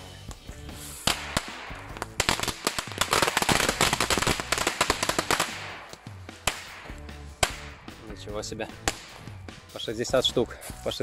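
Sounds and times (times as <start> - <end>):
firecrackers cracking: 0.8 - 7.9, 8.8 - 9.3.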